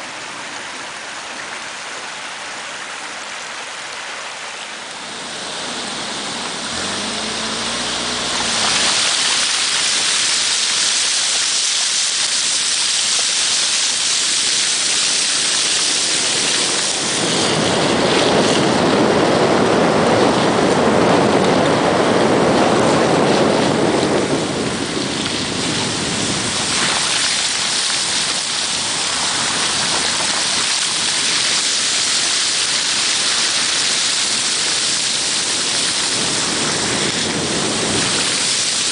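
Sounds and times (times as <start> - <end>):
heavy rain hissing: 2.0 - 21.2, 21.9 - 38.9
deep rushing sound: 4.9 - 10.8.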